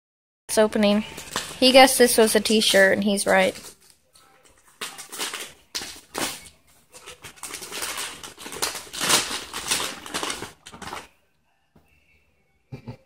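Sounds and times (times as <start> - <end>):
wrapping paper crinkling and tearing: 1.0 - 11.1.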